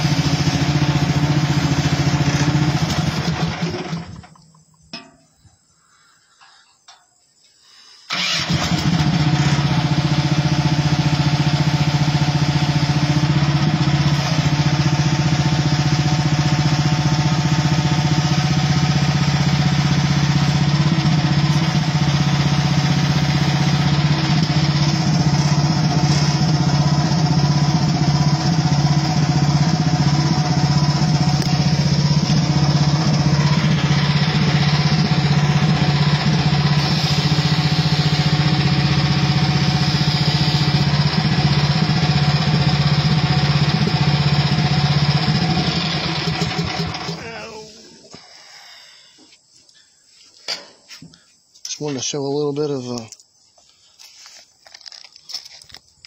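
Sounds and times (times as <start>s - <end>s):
excavator engine running: 0.0s - 4.4s, 8.1s - 48.2s.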